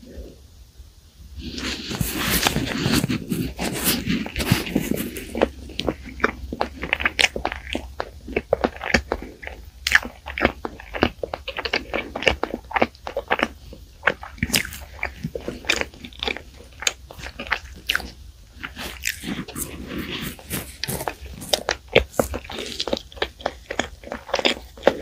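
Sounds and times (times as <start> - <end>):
chewing crunchy bread: 1.4 - 25.0.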